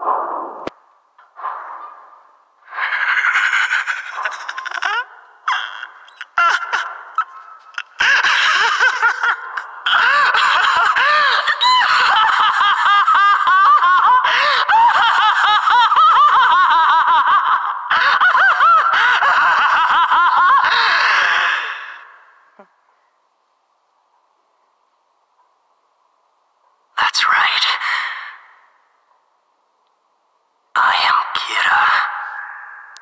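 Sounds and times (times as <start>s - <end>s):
man laughing maniacally: 2.8s - 22.0s.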